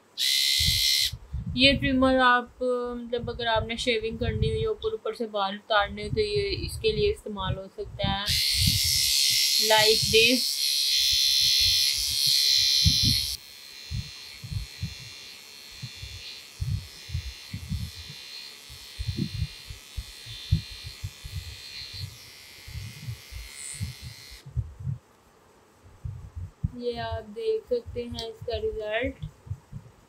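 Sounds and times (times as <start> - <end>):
trimmer buzzing: 0.0 - 1.3, 8.1 - 24.5.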